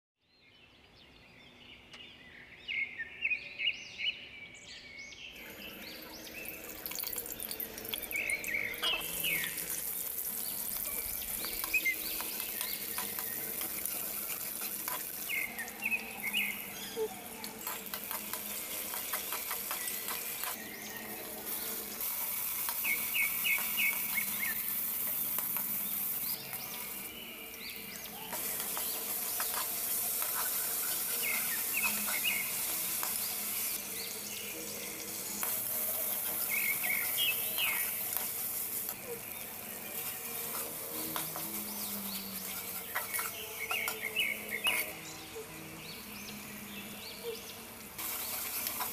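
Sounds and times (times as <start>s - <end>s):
hot oil sizzling: 5.4s - 46.7s, 47.8s - 48.9s
steel ladle scraping a pot: 5.9s - 20.6s, 40.0s - 45.0s.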